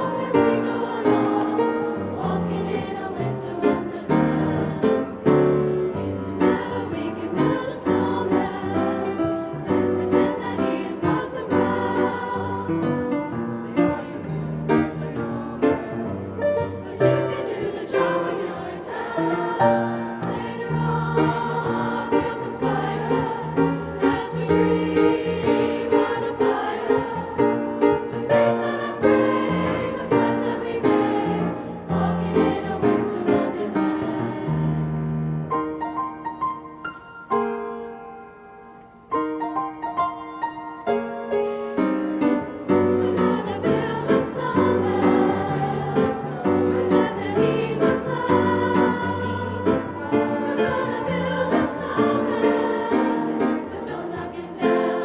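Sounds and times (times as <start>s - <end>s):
mixed choir singing in parts: 0.0s - 35.5s, 41.7s - 55.0s
piano accompaniment: 0.0s - 55.0s.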